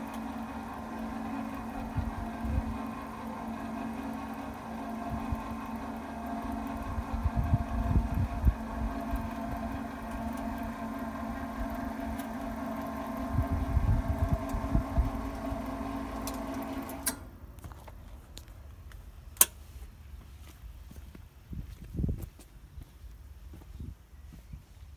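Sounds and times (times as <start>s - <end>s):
electric motor humming: 0.0s - 17.3s.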